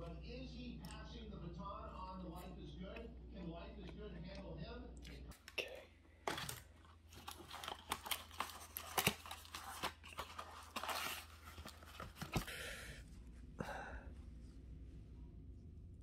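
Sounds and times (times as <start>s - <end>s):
clicks and rustles of handling: 6.2s - 12.5s
cardboard tearing: 6.3s - 12.5s
plastic wrapping crinkling: 6.3s - 12.5s.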